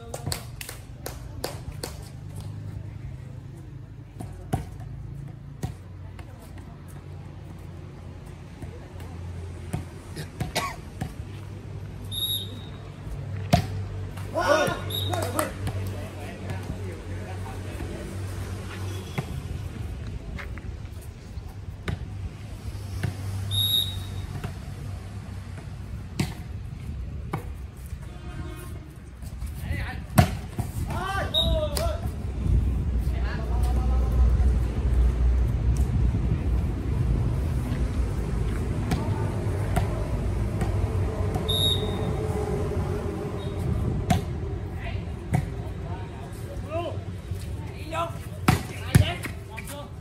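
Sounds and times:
high whistle-like tone: 12.1s - 12.8s, 23.5s - 24.2s, 41.5s - 42.1s.

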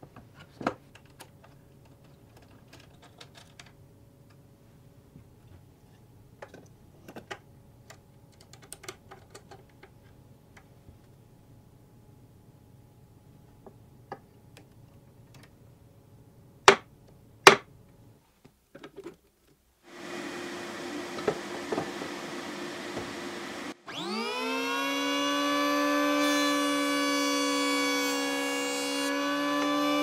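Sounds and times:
dust extraction vacuum running: 19.9s - 30.0s
electric hand planer whine: 19.9s - 30.0s.

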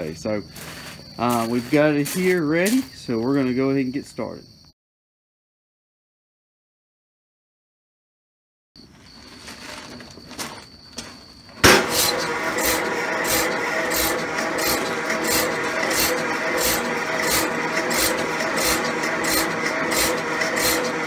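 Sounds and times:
milking machine pump pulsing: 11.7s - 21.0s.

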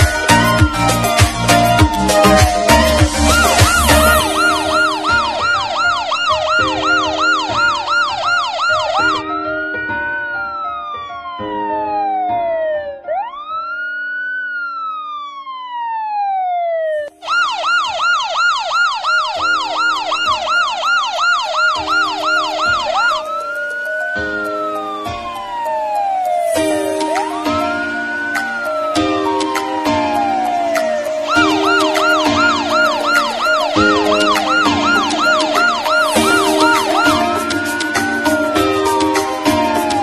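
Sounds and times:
electronic siren yelp and wail: 0.0s - 40.0s.

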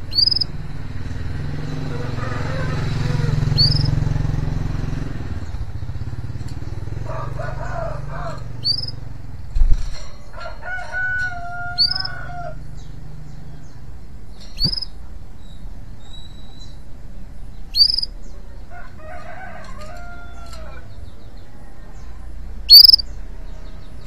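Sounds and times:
canary chirping: 0.0s - 0.6s, 3.5s - 4.0s, 8.6s - 9.0s, 11.7s - 12.2s, 14.4s - 16.8s, 17.5s - 18.3s, 22.7s - 23.2s
low engine hum: 0.0s - 10.0s
rooster crowing: 1.8s - 4.0s, 7.0s - 8.7s, 10.3s - 12.7s, 18.5s - 21.0s.

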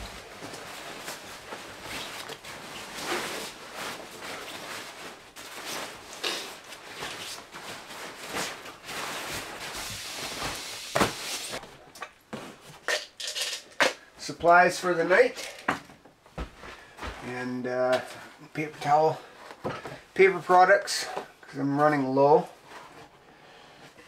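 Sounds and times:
sleeping bag rustling: 0.0s - 12.8s.

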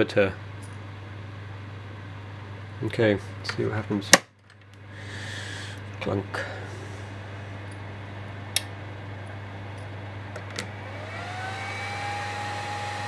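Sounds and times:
electrical hum: 0.0s - 13.0s
spindle motor whine rising: 10.6s - 13.0s.

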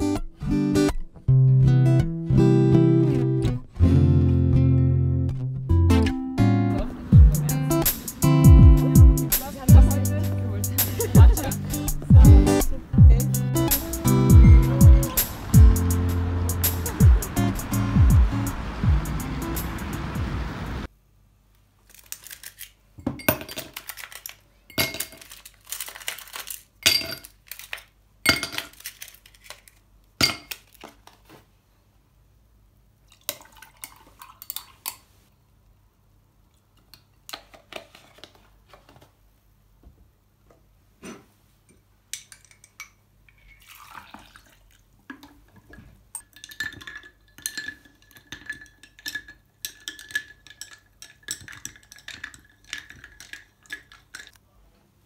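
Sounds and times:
liquid pouring: 33.1s - 34.8s, 43.4s - 45.3s
ice cubes clinking into glass: 46.2s - 54.4s
metal straw stirring ice: 46.3s - 54.4s.

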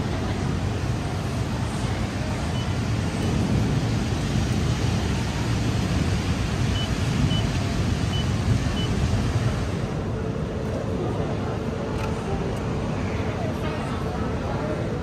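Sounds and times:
background rumble and hiss: 0.0s - 15.0s.

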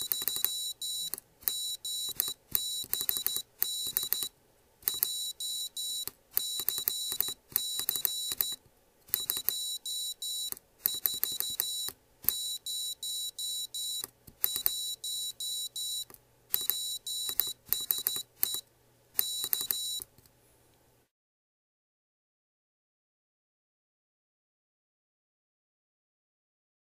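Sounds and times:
morse code buzzer beeps: 0.0s - 4.3s, 4.9s - 18.6s, 19.2s - 20.1s
switch clicks: 0.0s - 5.2s, 16.0s - 20.3s.

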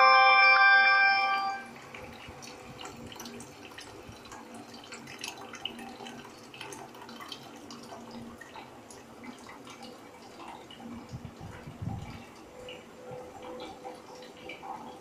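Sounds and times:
chiming electronic melody: 0.0s - 1.8s
water trickling and dripping: 1.6s - 15.0s.

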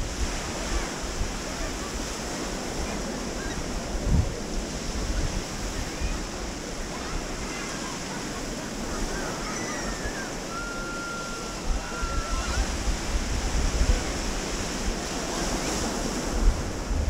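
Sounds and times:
waves washing onto sandy beach: 0.0s - 17.0s
wind buffeting microphone: 0.0s - 17.0s.

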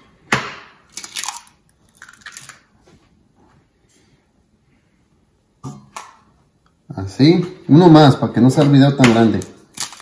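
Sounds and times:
eggshell cracking: 0.8s - 2.7s, 9.0s - 10.0s.

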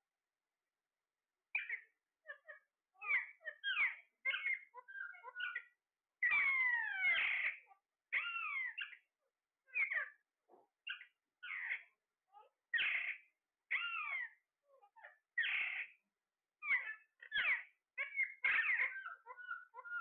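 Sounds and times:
parakeets calling harshly: 1.6s - 9.0s, 9.7s - 10.1s, 10.9s - 11.9s, 12.7s - 14.4s, 15.0s - 16.0s, 16.6s - 20.0s.

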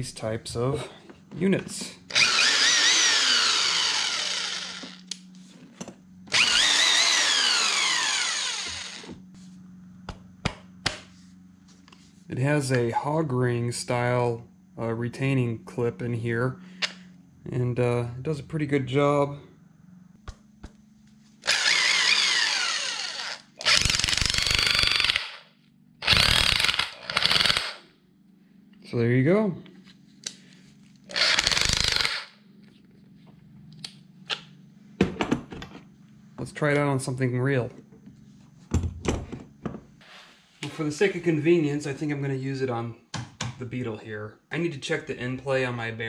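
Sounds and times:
impact wrench motor whine: 2.1s - 5.3s, 6.2s - 9.3s, 21.4s - 27.8s, 31.1s - 32.4s.

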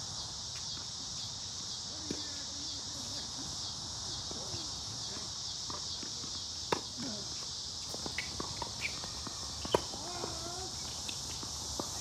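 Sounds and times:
insects droning: 0.0s - 12.0s
tennis ball struck by racket: 8.0s - 10.2s.

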